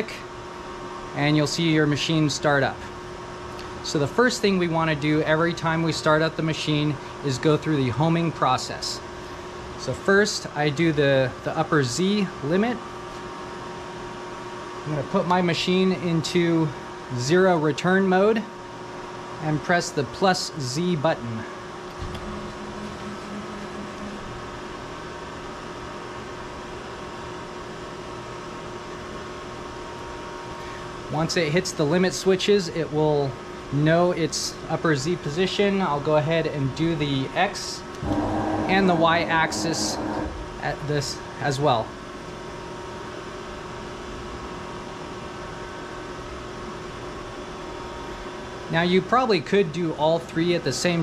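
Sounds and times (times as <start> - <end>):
fan hiss: 0.0 - 0.4, 30.4 - 42.6
cooling fans humming: 0.0 - 51.0
rotary phase converter running: 21.2 - 26.0, 36.9 - 41.4
machine hum: 21.2 - 27.8, 37.8 - 42.2
cnc mill motor tone: 21.9 - 26.2, 38.0 - 41.4.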